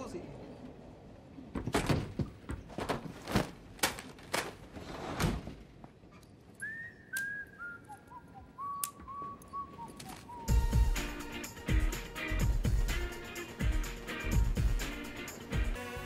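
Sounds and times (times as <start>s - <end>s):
person whistling a tune: 6.6s - 10.9s.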